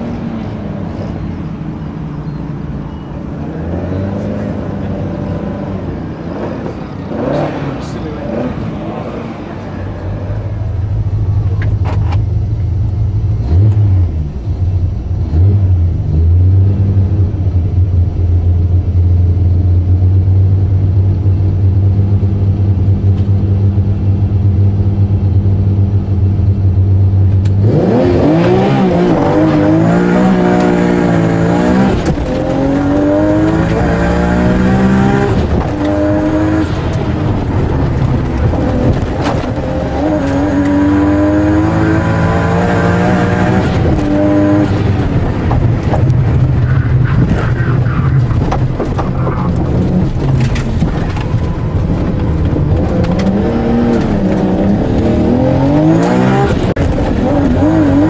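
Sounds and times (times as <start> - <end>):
car engine revving from inside cabin: 27.4 - 45.2, 51.8 - 58.0.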